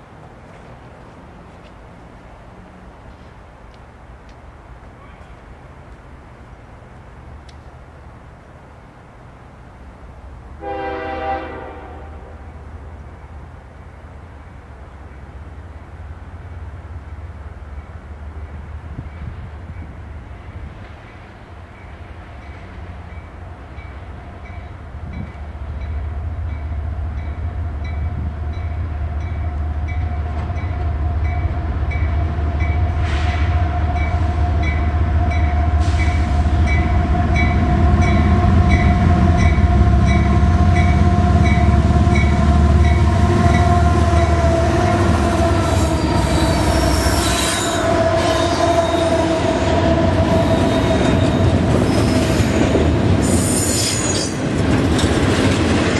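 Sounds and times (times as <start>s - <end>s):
freight train rumbling past: 0.0s - 55.9s
crossing bell ringing: 33.9s - 47.9s.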